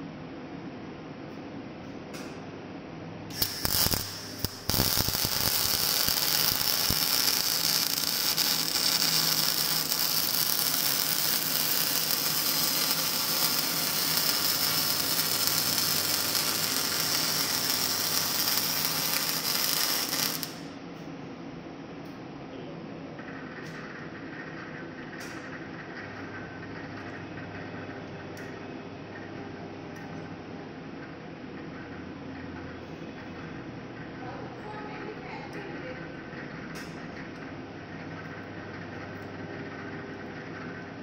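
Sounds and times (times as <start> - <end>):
welding arc crackling: 3.3 - 20.8.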